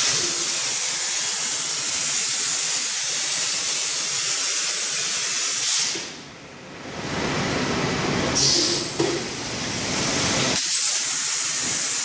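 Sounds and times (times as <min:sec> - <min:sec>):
plasma torch cutting hiss: 0:00.0 - 0:06.2, 0:08.4 - 0:08.7, 0:10.0 - 0:12.0.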